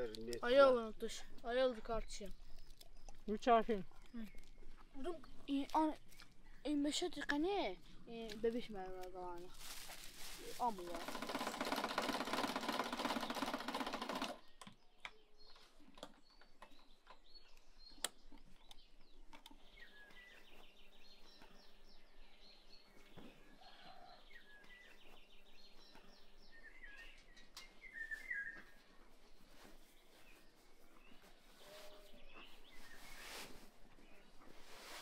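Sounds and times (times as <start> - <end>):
birds chirping: 0.0 - 35.0
loud mechanical rattle: 11.0 - 14.4.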